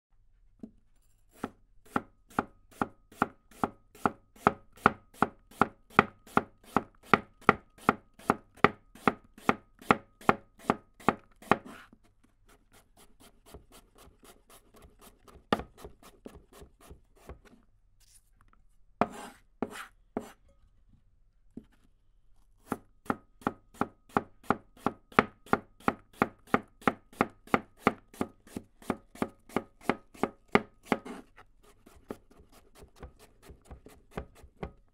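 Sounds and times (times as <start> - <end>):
knife slicing on cutting board: 11.4 - 12.0, 19.0 - 20.4, 30.8 - 34.5.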